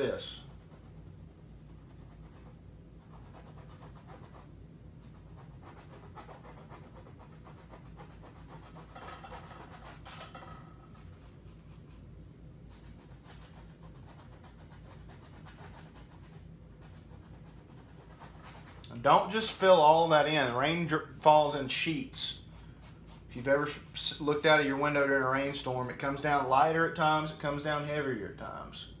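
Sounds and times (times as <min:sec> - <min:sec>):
brush scrubbing on canvas: 0:05.1 - 0:12.1, 0:12.7 - 0:19.7, 0:21.5 - 0:24.3.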